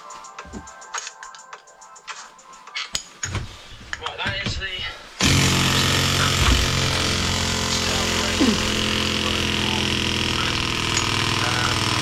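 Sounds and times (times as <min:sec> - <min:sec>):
impact wrench hammering: 0:05.2 - 0:12.0.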